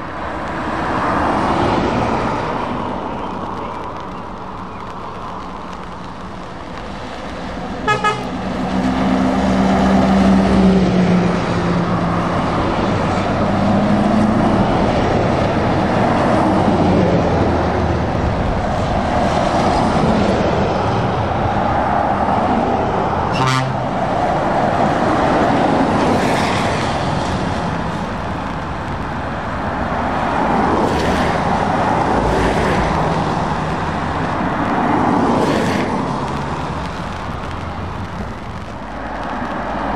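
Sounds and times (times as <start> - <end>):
diesel truck engines: 0.0 - 39.9
tyres hissing on wet road: 0.0 - 39.9
truck horn toots: 7.8 - 8.4, 23.3 - 23.8.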